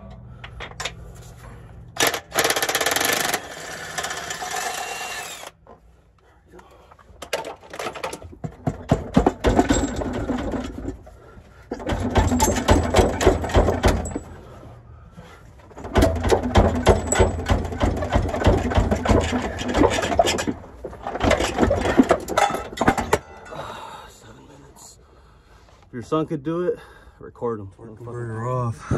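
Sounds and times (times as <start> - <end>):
power tool rattling: 2.0 - 5.6, 7.3 - 11.0, 11.7 - 14.3, 15.7 - 23.3.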